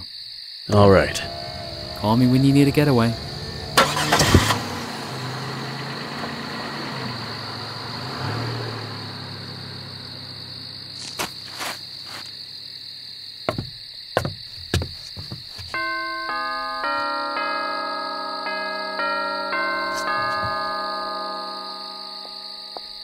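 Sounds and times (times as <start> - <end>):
crickets chirping: 0.0 - 23.0
car pulling away: 0.7 - 12.6, 19.4 - 21.7
footsteps: 11.0 - 12.4, 13.5 - 15.9, 19.9 - 20.7.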